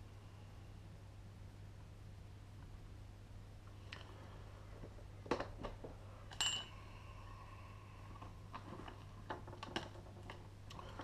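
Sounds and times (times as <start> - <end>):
steady low hum: 0.0 - 11.0
sharp ringing metal clink: 6.4 - 6.8.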